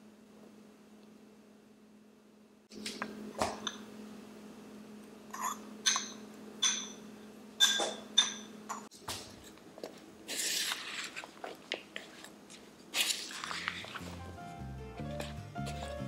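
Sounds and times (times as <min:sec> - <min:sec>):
spoon clinking against a bowl: 0:05.4 - 0:07.0, 0:07.6 - 0:08.6
salad being tossed and stirred: 0:10.3 - 0:14.3.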